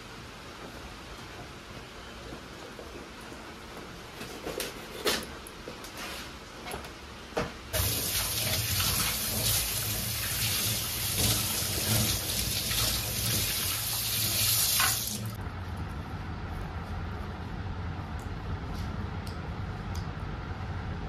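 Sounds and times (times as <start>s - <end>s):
tap water running into metal sink: 7.8s - 15.4s.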